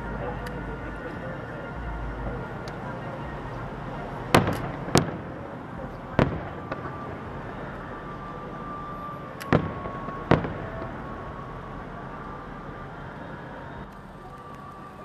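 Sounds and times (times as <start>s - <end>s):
steady background noise: 0.0s - 15.0s
fireworks bursting bangs: 4.3s - 11.2s.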